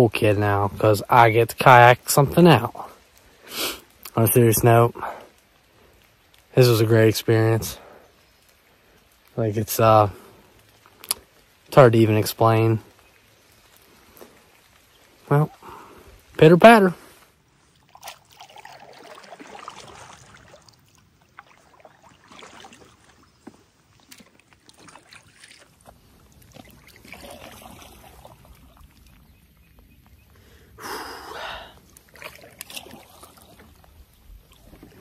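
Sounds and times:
light rain pattering on water: 0:00.0 - 0:35.0
paddle strokes swishing in water: 0:17.0 - 0:30.1, 0:31.8 - 0:35.0.

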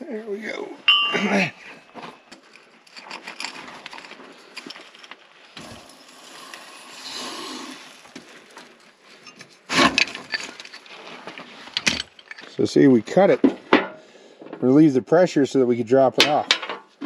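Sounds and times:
steel tools clinking and scraping: 0:00.9 - 0:01.6, 0:09.1 - 0:12.7, 0:16.2 - 0:16.9.

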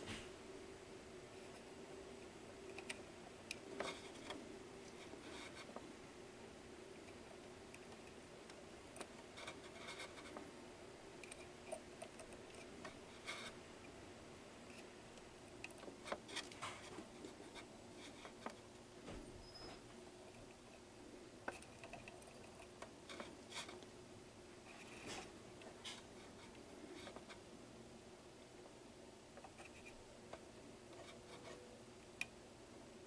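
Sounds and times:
low steady hum: 0:00.0 - 0:33.0
soldering iron clicks and scratching: 0:01.4 - 0:05.9.

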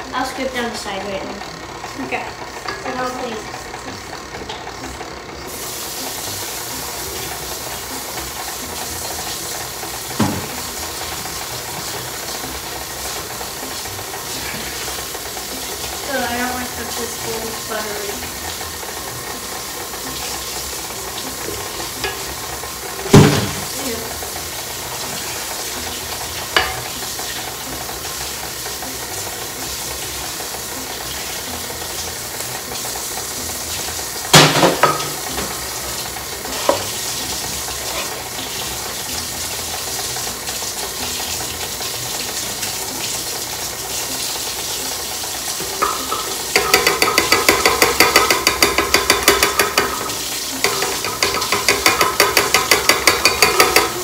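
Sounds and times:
utensil knocks: 0:10.1 - 0:10.7, 0:23.1 - 0:23.7, 0:45.7 - 0:54.0
spoon stirring in a bowl: 0:36.5 - 0:37.0, 0:45.8 - 0:54.0.

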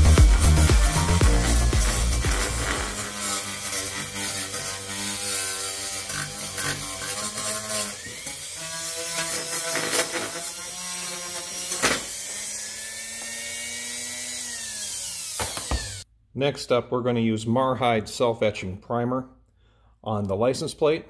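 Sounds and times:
wire brush scraping metal: 0:00.0 - 0:08.0
rotary tool motor whine: 0:00.8 - 0:16.0.

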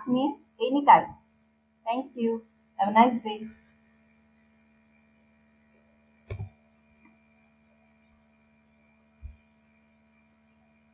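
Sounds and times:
faint electrical hum: 0:00.0 - 0:10.9
short soft knocks: 0:06.3 - 0:06.6.

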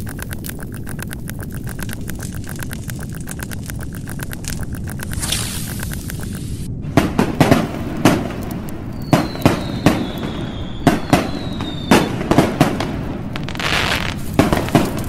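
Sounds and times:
fireworks crackle: 0:05.0 - 0:15.0
fireworks bangs: 0:06.5 - 0:15.0
high falling whistle: 0:08.9 - 0:12.2.

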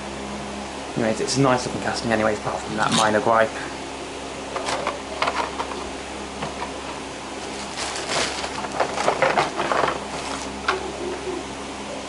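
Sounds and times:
low room tone hum: 0:00.0 - 0:12.0
packaging crinkling and rustling: 0:07.4 - 0:10.6.

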